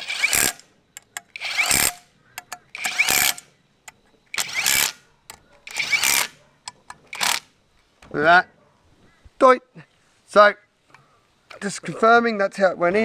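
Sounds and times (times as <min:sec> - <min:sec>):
impact wrench bursts: 0:00.0 - 0:03.5, 0:04.3 - 0:05.0, 0:05.7 - 0:06.4, 0:07.1 - 0:07.5
small clicks: 0:00.3 - 0:07.5.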